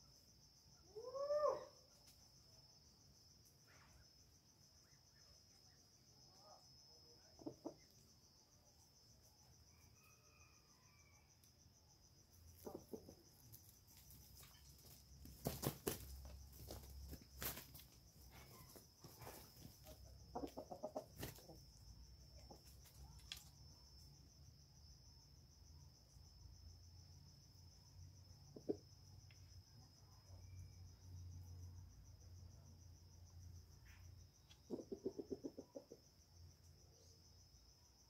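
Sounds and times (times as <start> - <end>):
chicken clucking: 7.3 - 8.0, 12.6 - 13.4, 18.3 - 21.7, 34.5 - 36.0.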